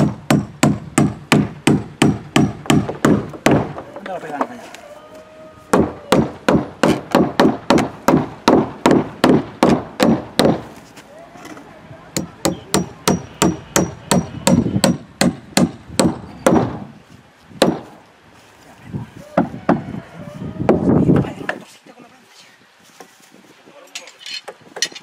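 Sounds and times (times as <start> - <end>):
hammer driving nails into wood: 5.8 - 10.7.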